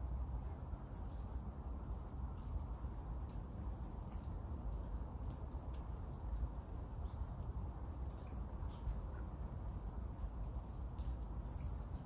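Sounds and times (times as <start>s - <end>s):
small birds chirping: 5.6s - 12.0s.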